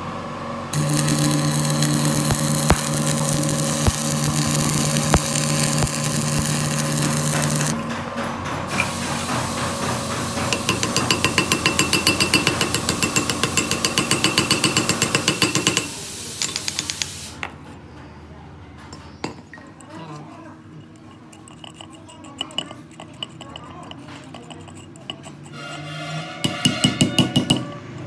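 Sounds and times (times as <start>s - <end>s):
arc welder crackling: 0.7s - 7.8s
hammer tapping on metal: 10.5s - 15.9s, 26.5s - 27.7s.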